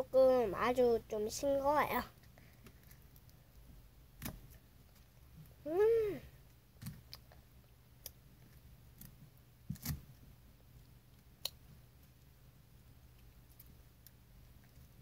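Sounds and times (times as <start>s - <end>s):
child chewing mouth clicks: 7.1s - 8.2s.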